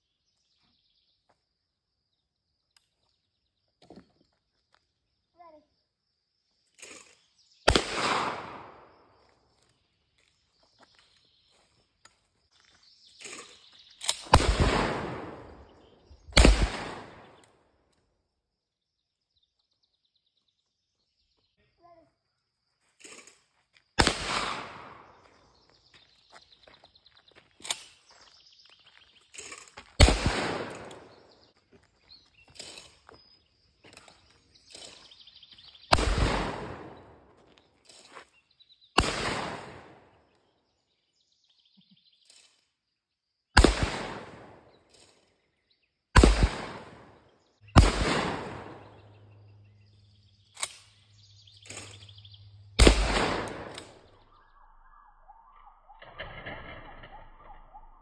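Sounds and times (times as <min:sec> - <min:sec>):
shotgun blasts with echo: 0:07.7 - 0:09.0, 0:14.1 - 0:17.4, 0:24.0 - 0:25.2, 0:30.0 - 0:31.3, 0:35.8 - 0:37.3, 0:39.0 - 0:40.2, 0:43.6 - 0:44.8, 0:46.2 - 0:49.2, 0:52.8 - 0:54.1.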